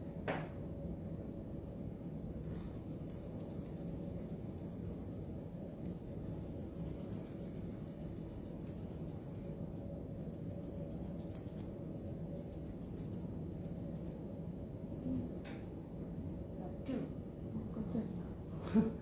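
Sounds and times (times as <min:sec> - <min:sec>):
steady low hum: 0:00.0 - 0:19.0
scissors snipping hair: 0:02.4 - 0:15.4.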